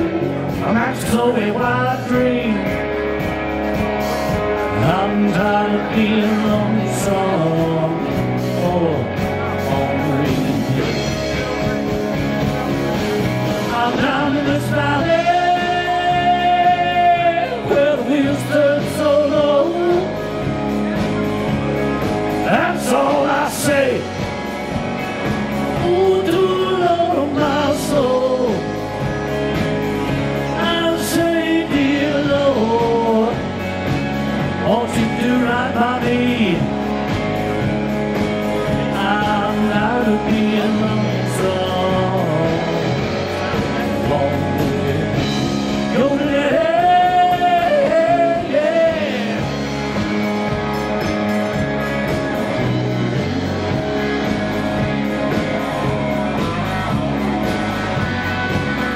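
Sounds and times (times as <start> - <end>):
live blues-rock band: 0.0 - 58.9.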